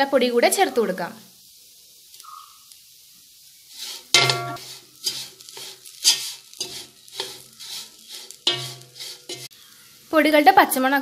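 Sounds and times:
frying sizzle: 0.0s - 11.0s
spoon scraping pan: 3.7s - 9.6s
pan ringing: 4.2s - 4.6s.

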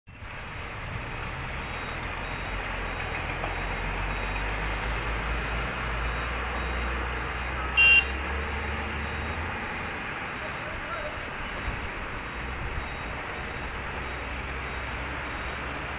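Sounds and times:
traffic engine rumble: 0.1s - 15.9s
vehicle horn honk: 7.7s - 8.2s.

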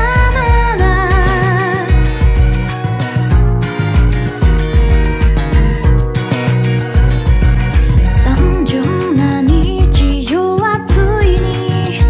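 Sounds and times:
person singing: 0.0s - 2.1s, 8.2s - 12.0s
upbeat song with drum beat: 0.0s - 12.0s.

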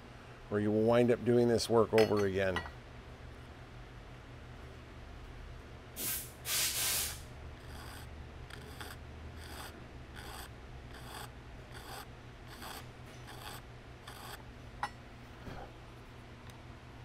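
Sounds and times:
hand tool rasping strokes: 7.6s - 14.4s.

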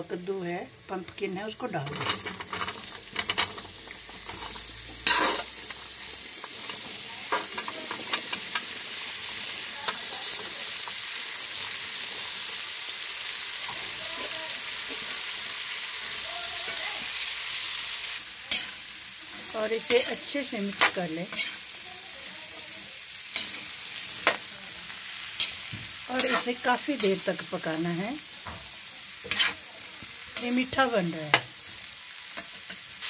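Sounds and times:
pumpkin sizzling in hot fat: 0.0s - 33.0s
metal ladle clinking and scraping: 1.9s - 3.6s, 29.2s - 29.6s.

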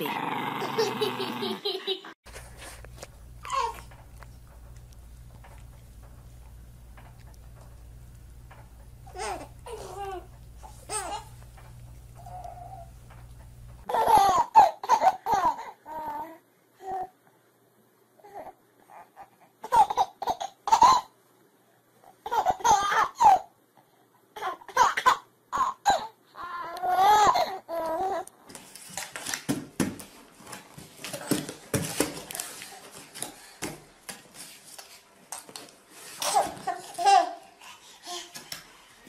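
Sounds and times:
rustling and light knocks: 2.3s - 13.9s
baby laughing: 13.9s - 15.8s.

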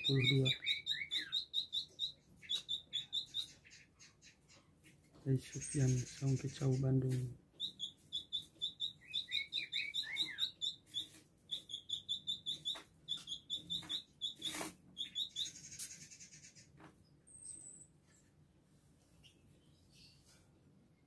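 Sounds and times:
buzzy bird phrase: 0.0s - 1.8s
bird singing high chipping notes: 0.0s - 3.7s, 7.5s - 16.4s.

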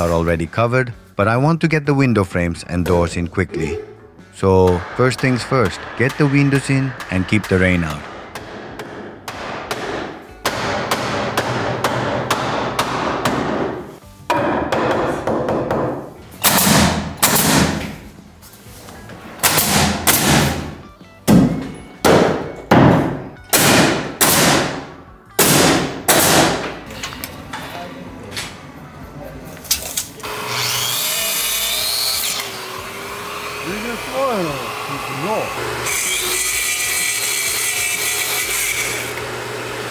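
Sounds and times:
nail gun firing: 4.7s - 13.7s, 16.4s - 17.9s, 19.4s - 20.8s, 22.1s - 26.8s.

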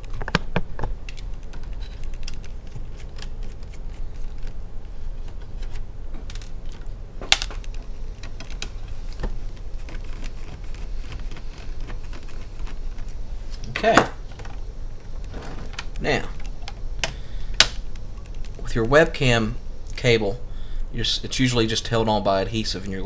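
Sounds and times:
low steady hum: 0.0s - 23.0s.

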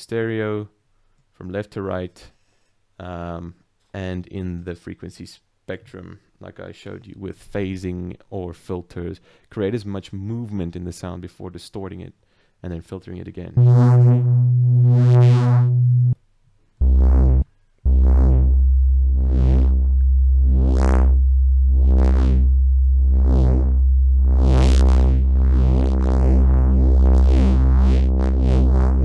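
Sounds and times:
wobbling synth bass: 13.6s - 16.2s, 16.8s - 29.0s.

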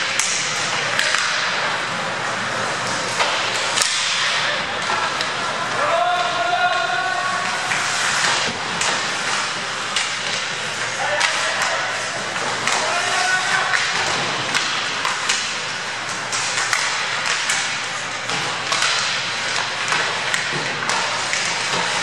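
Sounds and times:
hockey sticks clacking: 0.0s - 22.0s
skate blades scraping ice: 0.0s - 22.0s
person shouting: 5.8s - 7.4s.

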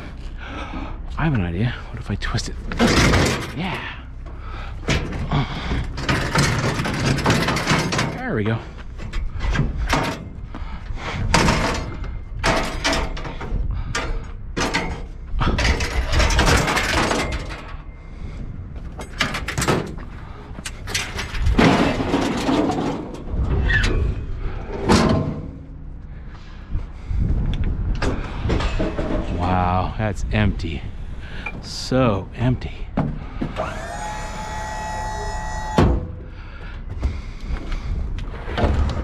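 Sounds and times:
sheet metal clanking and scraping: 2.7s - 3.6s, 4.8s - 10.4s, 11.2s - 17.9s, 20.7s - 25.8s
metal squeal: 33.6s - 35.9s.

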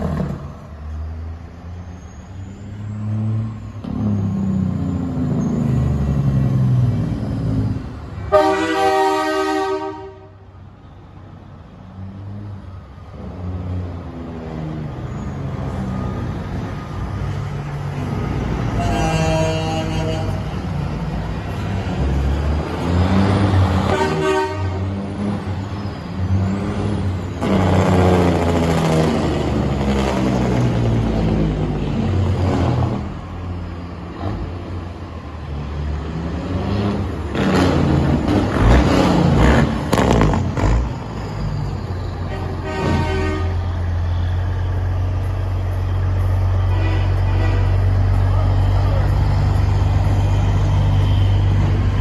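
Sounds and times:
truck engines rumbling and revving: 0.0s - 52.0s
truck horn blasts: 8.3s - 10.4s, 18.6s - 20.6s, 23.8s - 25.0s, 42.3s - 43.8s, 46.6s - 47.9s.

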